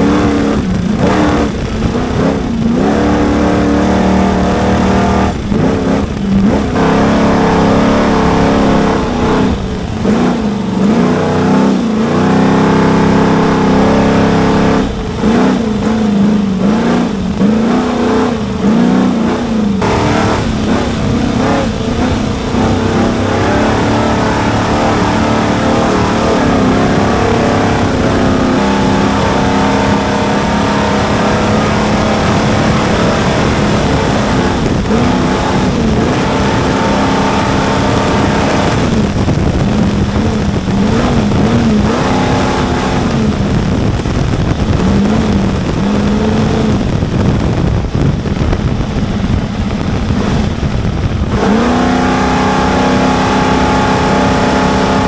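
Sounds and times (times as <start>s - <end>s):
constant rushing noise: 0.0s - 55.0s
truck engine revving: 0.0s - 55.0s.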